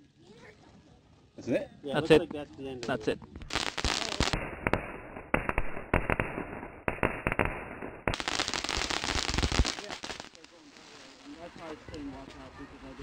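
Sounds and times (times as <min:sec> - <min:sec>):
firework crackling pops: 0:02.8 - 0:12.4
firework hissing: 0:03.4 - 0:11.8.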